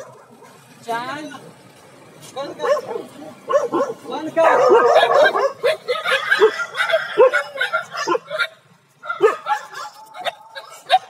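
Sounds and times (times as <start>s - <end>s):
dogs yipping and whining: 2.6s - 11.0s.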